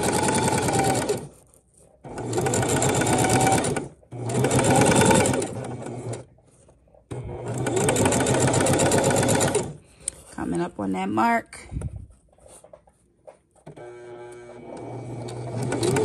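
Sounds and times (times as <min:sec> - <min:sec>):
sewing machine stitching: 0:00.0 - 0:09.8, 0:13.6 - 0:16.0.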